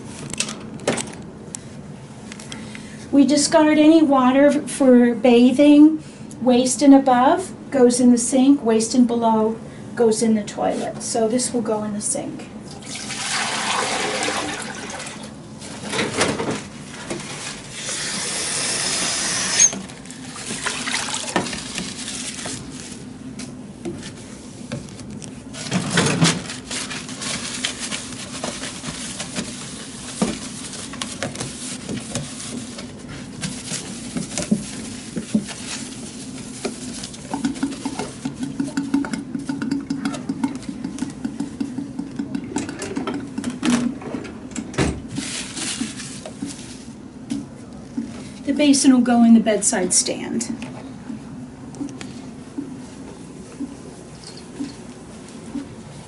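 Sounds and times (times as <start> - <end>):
water running into a sink: 12.7 - 15.2, 20.4 - 21.7
paper towels rustling: 21.6 - 23.1, 24.0 - 38.4, 45.1 - 47.0.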